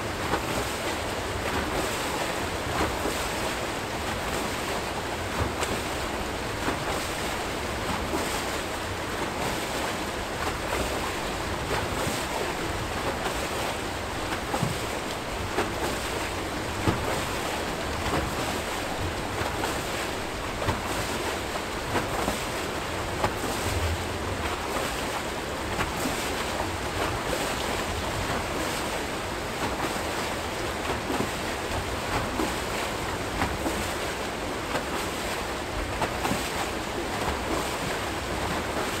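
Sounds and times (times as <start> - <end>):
water rushing and churning: 0.0 - 39.0.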